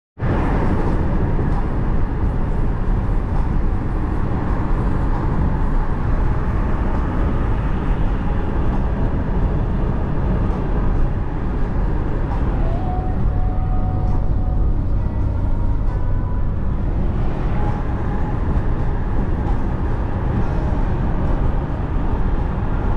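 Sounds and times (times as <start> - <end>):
car cabin road noise: 0.2 - 22.9.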